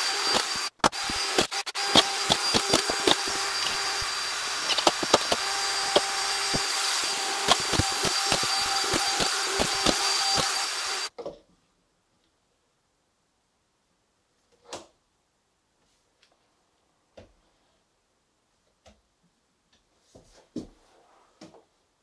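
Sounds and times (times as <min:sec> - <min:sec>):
electric motor whining: 0:00.0 - 0:11.1.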